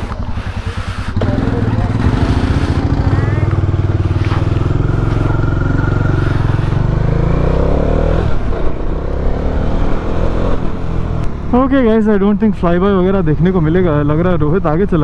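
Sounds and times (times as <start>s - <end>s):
motorcycle engine running: 0.0s - 14.4s.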